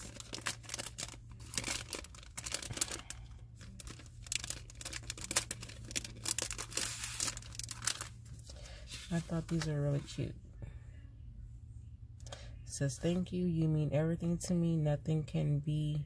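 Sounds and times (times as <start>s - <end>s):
plastic packaging crinkling: 0.0s - 9.7s
low steady hum: 0.0s - 16.0s.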